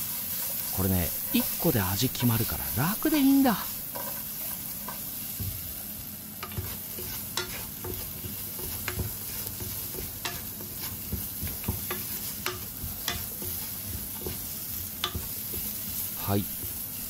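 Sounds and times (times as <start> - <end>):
potato slices sizzling in a pan: 0.0 - 17.0
spatula tapping and scraping pan: 3.8 - 5.7, 6.4 - 17.0.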